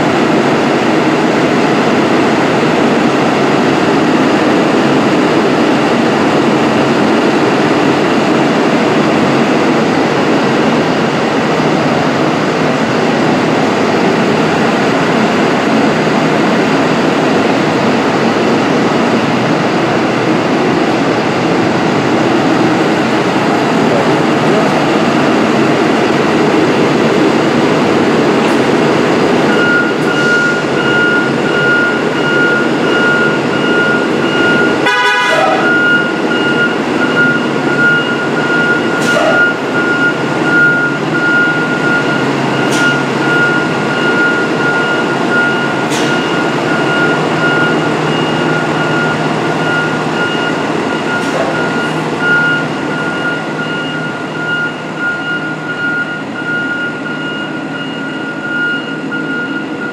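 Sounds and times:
bus engine running: 0.0s - 59.9s
reverse alarm beeping: 29.4s - 59.9s.

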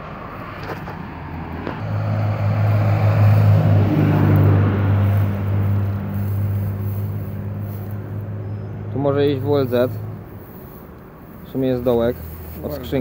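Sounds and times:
vehicle engine humming: 0.0s - 13.0s.

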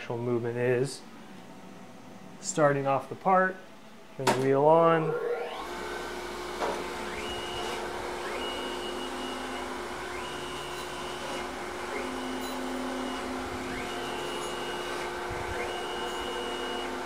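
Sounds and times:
feed drive whining: 5.0s - 17.0s
grinder motor humming: 5.1s - 17.0s.

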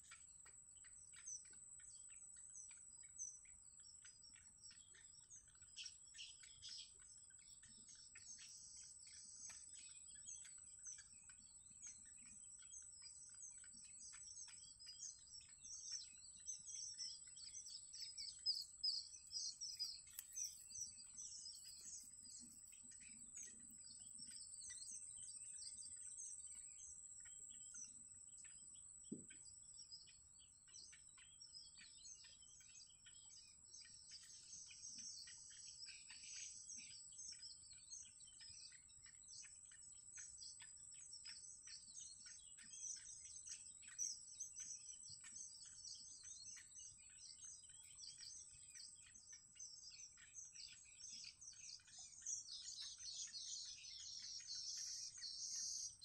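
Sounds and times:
chicks chirping: 16.5s - 25.0s.

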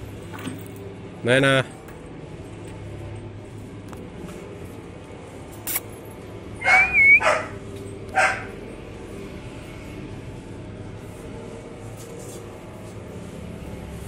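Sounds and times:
short wavering high tone: 6.6s - 7.2s
dog barking: 6.6s - 8.6s.

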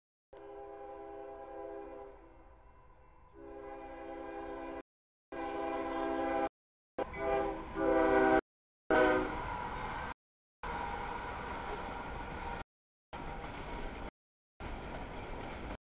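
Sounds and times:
locomotive horn blasts: 0.4s - 2.3s, 3.4s - 9.4s.

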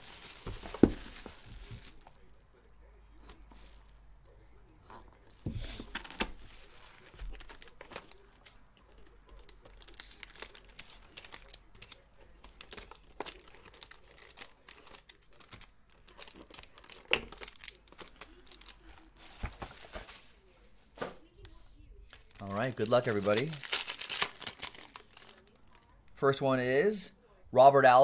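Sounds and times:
foil packs handled: 0.0s - 2.2s, 5.8s - 8.6s, 9.7s - 20.4s, 22.2s - 25.8s
plastic wrap crinkling: 0.0s - 2.4s, 6.0s - 20.5s, 22.1s - 26.0s.

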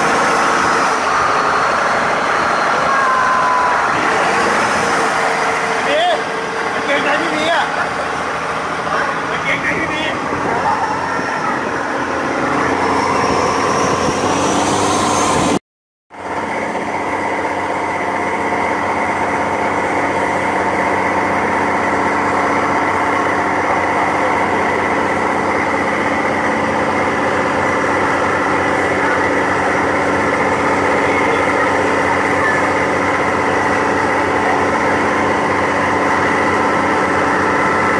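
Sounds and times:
water rushing from hull: 0.0s - 15.5s
boat engine running: 0.0s - 37.9s.

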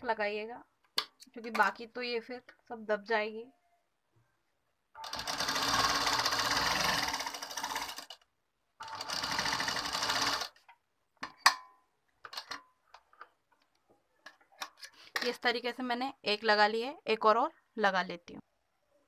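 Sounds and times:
sewing machine stitching: 5.0s - 8.2s, 8.8s - 10.6s.

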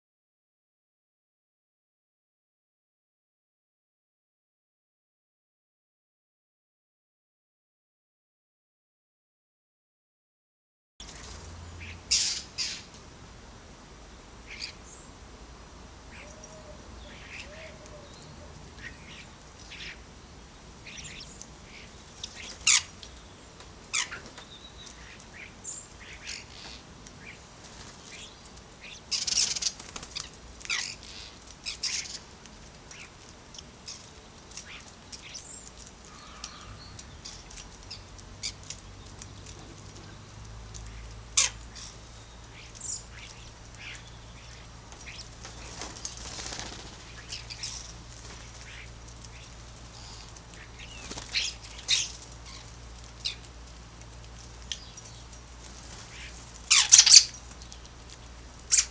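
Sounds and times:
starlings chirping and whistling: 11.8s - 12.9s, 20.9s - 22.9s, 34.7s - 38.6s, 48.6s - 52.6s, 56.1s - 57.4s
wing flapping: 27.4s - 40.5s, 43.2s - 54.7s, 55.3s - 58.9s.

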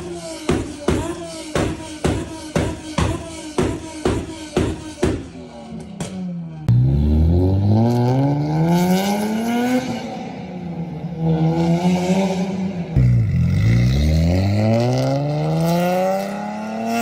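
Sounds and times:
car engine accelerating hard: 6.7s - 17.0s.

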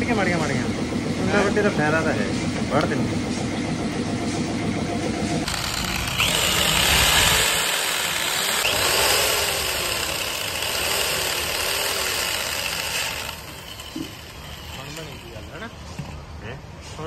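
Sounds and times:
electric drill running: 5.4s - 15.6s.

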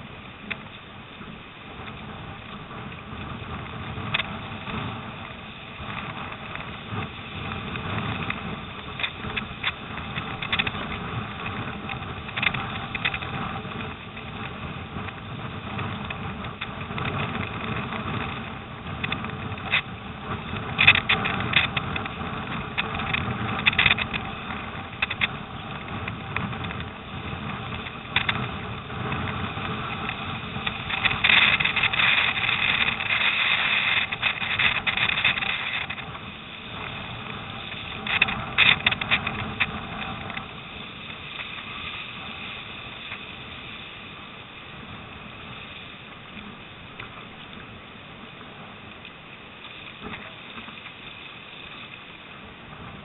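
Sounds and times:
choppy water rushing: 0.0s - 53.0s
paddle and hull splashes: 0.0s - 53.0s
storm wind: 0.0s - 53.0s.

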